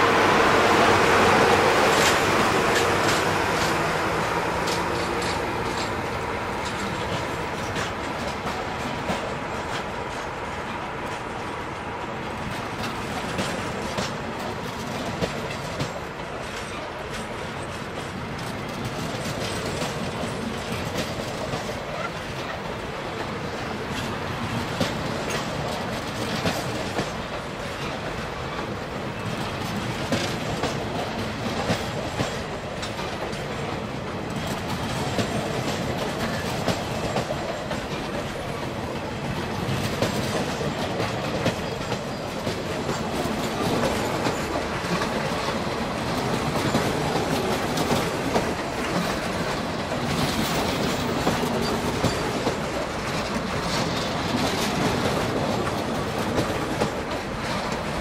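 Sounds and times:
train wheels clickety-clack: 0.0 - 58.0.

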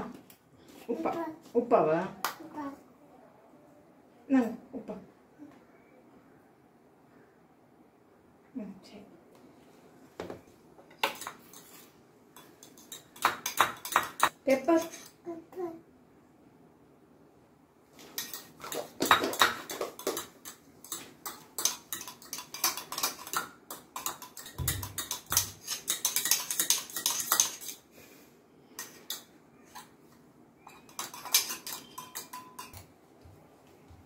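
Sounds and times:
fork clinking in metal tumbler: 30.7 - 32.9.

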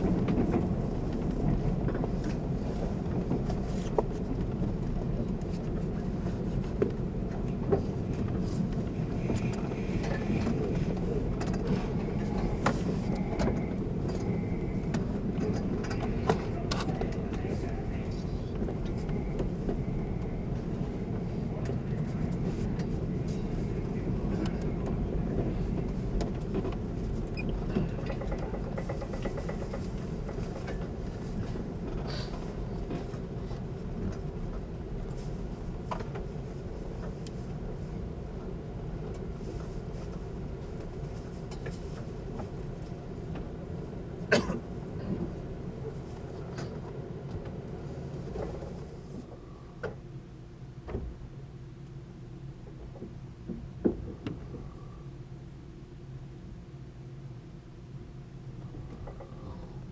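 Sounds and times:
train running rumble: 0.0 - 59.9.

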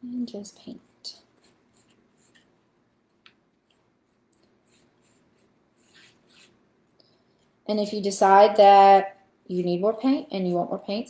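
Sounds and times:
paintbrush swishing on paper plate: 0.7 - 2.7, 3.7 - 6.6.

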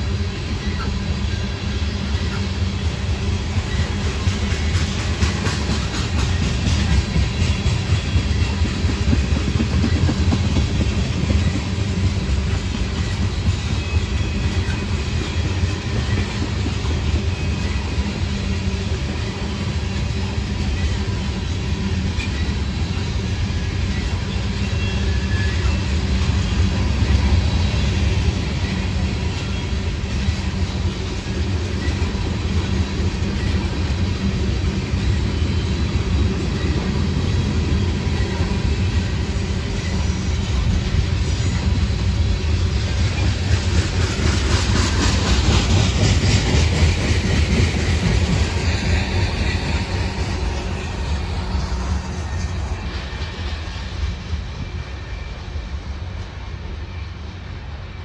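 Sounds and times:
freight train wheels rumbling: 0.0 - 58.0
clatter over rails: 3.7 - 13.8.

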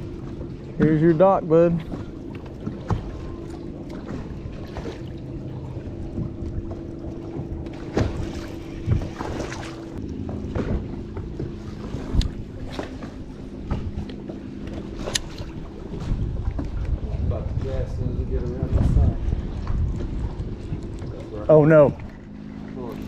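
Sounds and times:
knocks on boat: 0.3 - 3.3, 6.0 - 15.1.

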